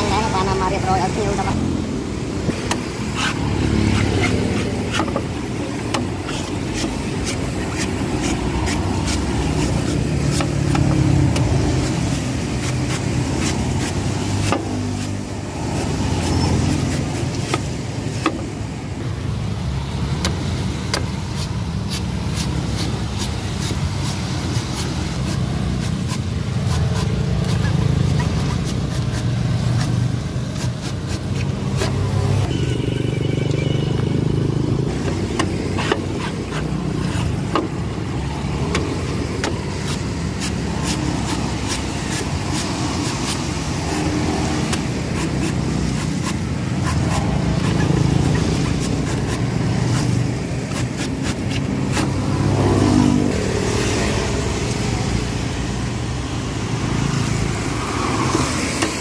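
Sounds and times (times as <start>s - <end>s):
passing motor traffic rumble: 0.0s - 59.0s
cleaver chopping coconut husk: 2.6s - 18.5s, 20.2s - 32.3s, 34.9s - 53.3s.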